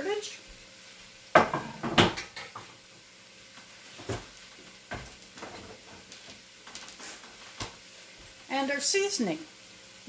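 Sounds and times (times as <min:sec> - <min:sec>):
objects knocking in kitchen: 0:01.4 - 0:02.7.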